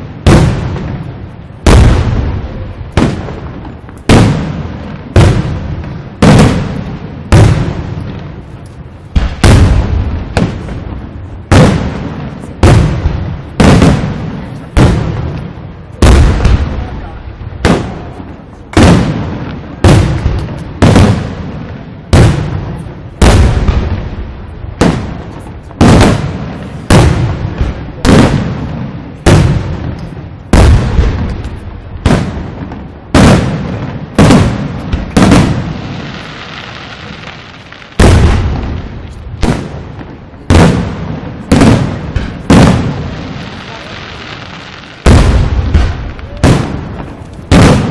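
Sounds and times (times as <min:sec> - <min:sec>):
steady hiss: 0:34.7 - 0:38.0.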